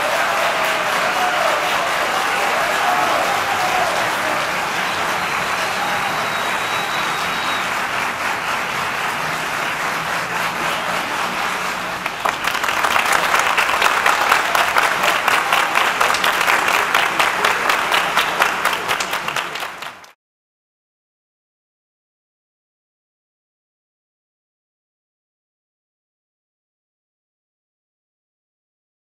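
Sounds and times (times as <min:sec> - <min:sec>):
audience applauding: 0:00.0 - 0:20.2.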